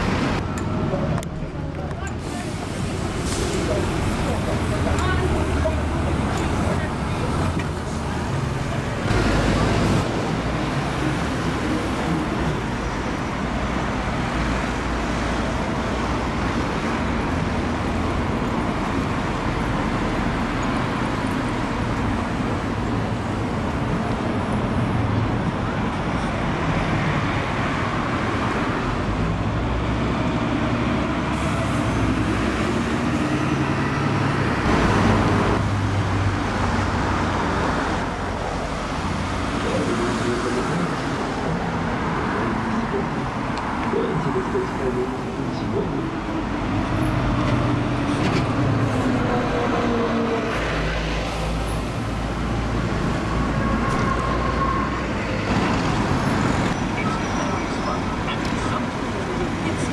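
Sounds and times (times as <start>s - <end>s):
bus engine rumble: 0.0s - 59.9s
cars passing: 0.0s - 59.9s.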